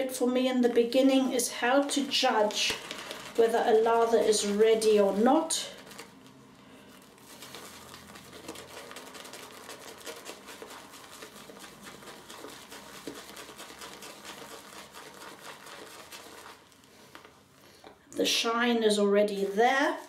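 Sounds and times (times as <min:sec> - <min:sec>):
shaving brush whipping lather: 0:07.2 - 0:16.7.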